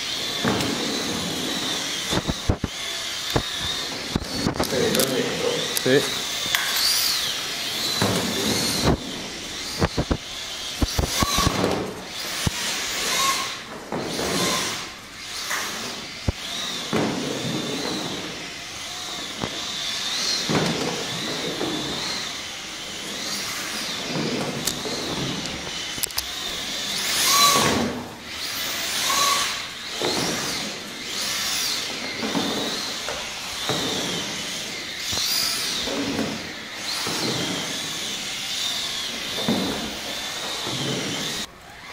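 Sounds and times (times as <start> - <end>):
electric motor whining: 0.0 - 41.9
sharp knocks: 7.8 - 18.4.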